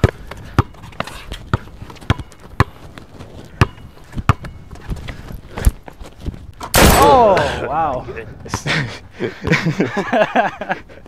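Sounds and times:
basketball bouncing on hard court: 0:01.5 - 0:02.8, 0:03.5 - 0:04.6.

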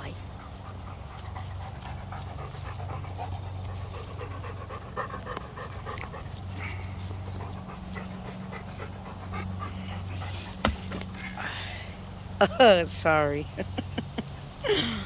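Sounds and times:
dog panting: 0:00.1 - 0:11.3.

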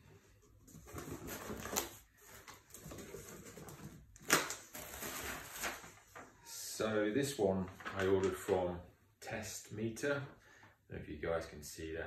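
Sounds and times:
plastic packing rustling: 0:00.7 - 0:06.4.

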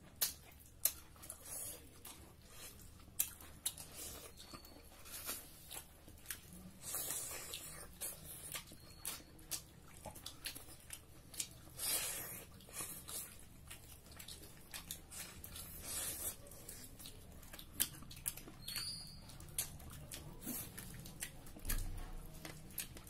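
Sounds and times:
wet chewing: 0:00.0 - 0:23.0.

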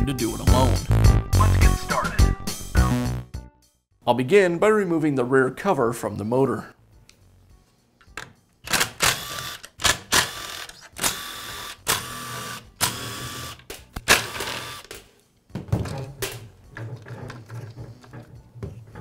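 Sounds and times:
cordless drill motor whining: 0:10.3 - 0:13.6, 0:14.3 - 0:14.9.

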